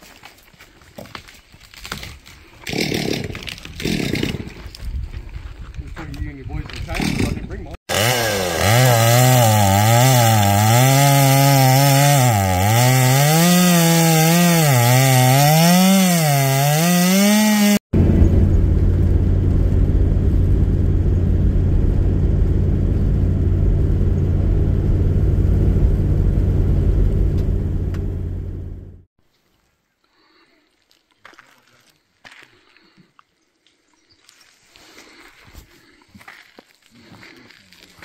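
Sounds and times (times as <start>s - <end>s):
chainsaw engine revving: 2.7s - 4.6s, 7.0s - 17.8s
vehicle driving on gravel: 18.0s - 29.0s.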